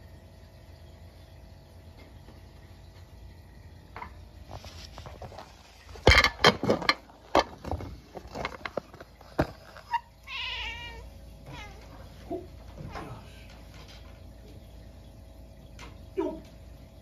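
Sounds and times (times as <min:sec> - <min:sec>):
cat trilling meow: 0:10.2 - 0:11.8.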